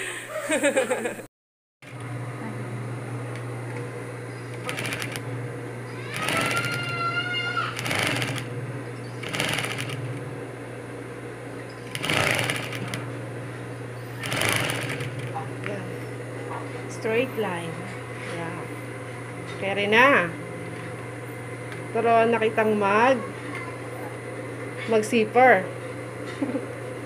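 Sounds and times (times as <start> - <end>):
sewing machine motor humming: 1.8 - 2.5, 3.3 - 10.4, 11.6 - 13.2, 14.0 - 15.8
sewing machine needle stitching: 4.5 - 5.3, 6.1 - 7.0, 7.8 - 8.5, 9.2 - 10.1, 11.8 - 13.0, 14.2 - 15.4.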